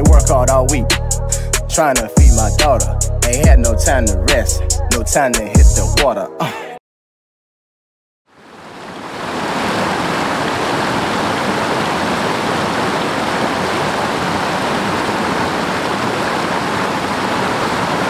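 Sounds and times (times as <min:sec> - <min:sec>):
stream rushing over boulders: 0:08.3 - 0:18.0.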